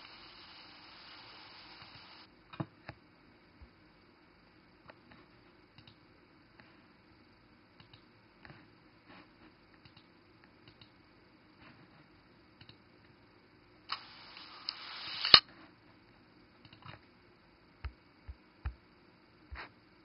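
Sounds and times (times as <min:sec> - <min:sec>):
light irregular clicks: 0:05.7 - 0:06.0, 0:07.8 - 0:08.6, 0:09.8 - 0:11.0, 0:12.6 - 0:13.2, 0:16.6 - 0:17.0.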